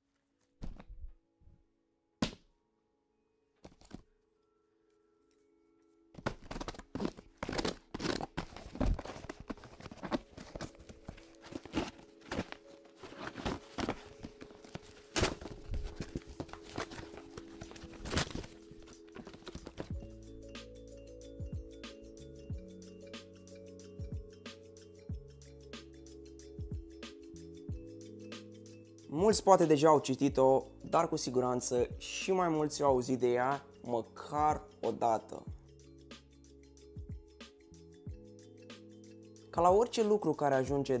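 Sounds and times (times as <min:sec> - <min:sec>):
soft background music: 0:02.5 - 0:41.0
cardboard tearing and scraping: 0:06.2 - 0:19.9.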